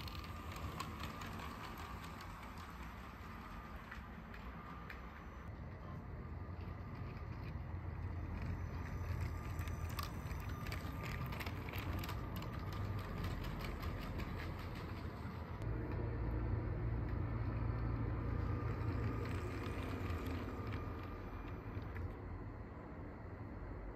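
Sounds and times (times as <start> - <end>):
toy train motor whirring: 0.0 - 5.4, 6.8 - 15.6, 18.3 - 22.2.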